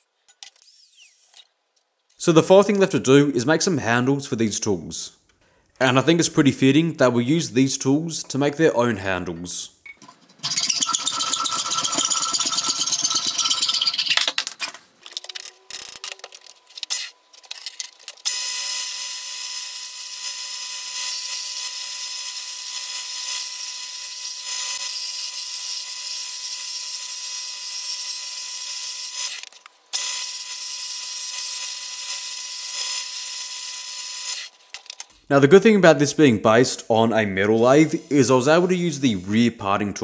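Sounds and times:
turning tool cutting wood: 0:10.4 - 0:14.0.

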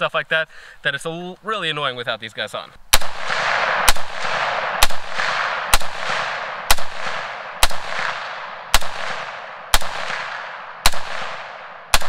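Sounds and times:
rifle shots with echo: 0:02.9 - 0:12.0.

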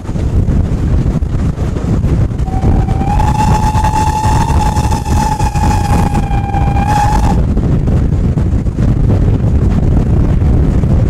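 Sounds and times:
steam locomotive whistle: 0:02.4 - 0:07.4
loud low rumble: 0:02.4 - 0:08.4.

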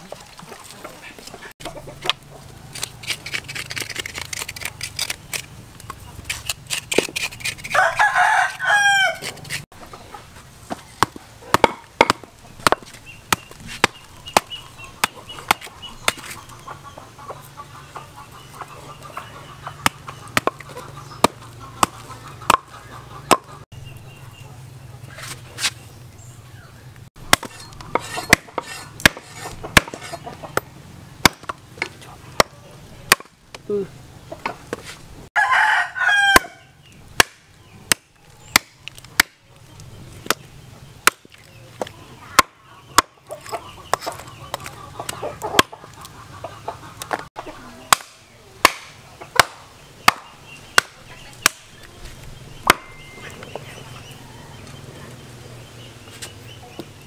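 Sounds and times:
rooster crowing: 0:07.7 - 0:09.3, 0:35.4 - 0:36.8
hatchet chopping bones on wood: 0:10.7 - 0:16.4, 0:19.8 - 0:23.5, 0:27.2 - 0:33.6, 0:36.3 - 0:36.6, 0:37.2 - 0:39.4, 0:40.2 - 0:45.8, 0:47.9 - 0:51.8, 0:52.6 - 0:53.6.

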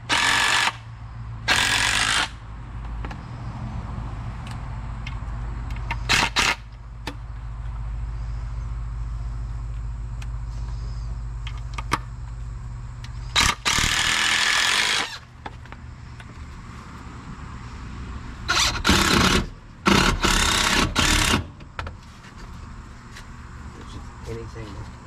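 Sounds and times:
power tool bursts: 0:00.0 - 0:00.8, 0:01.4 - 0:02.4, 0:06.0 - 0:06.7, 0:13.3 - 0:15.3, 0:18.5 - 0:21.5
steady low hum: 0:00.0 - 0:25.0.

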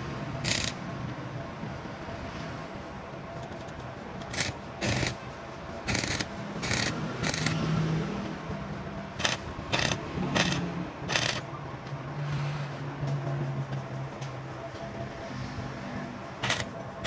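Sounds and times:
tool rasping on metal: 0:00.4 - 0:00.8, 0:04.3 - 0:05.2, 0:05.9 - 0:07.6, 0:09.2 - 0:11.4, 0:16.4 - 0:16.7.

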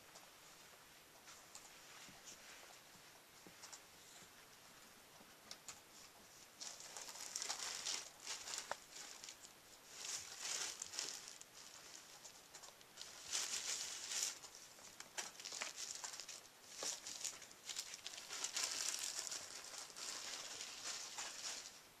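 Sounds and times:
plastic sheeting crinkling: 0:06.0 - 0:22.0.

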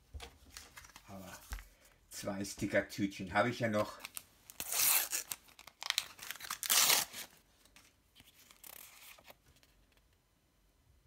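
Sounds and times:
foil packet ripping: 0:04.1 - 0:07.3.

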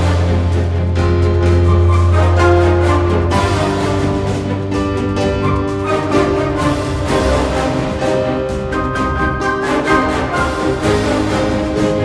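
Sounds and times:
orchestral music strings and brass: 0:00.0 - 0:12.0.

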